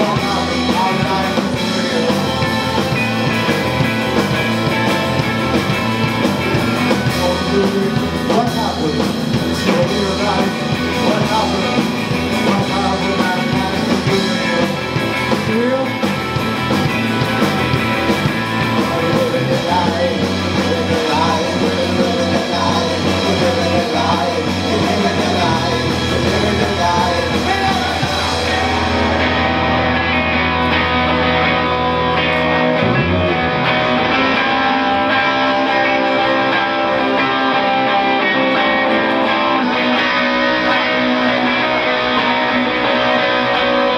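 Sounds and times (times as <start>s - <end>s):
person singing: 0.0s - 29.9s
live rock band playing: 0.0s - 43.9s
long held bass notes: 0.0s - 43.9s.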